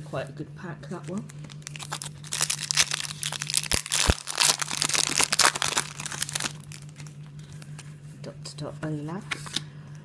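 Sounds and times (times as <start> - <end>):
foil packet crinkling: 1.4 - 7.2.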